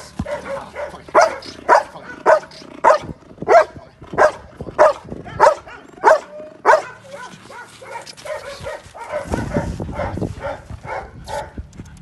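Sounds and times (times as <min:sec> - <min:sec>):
dog barking: 0:00.2 - 0:11.6.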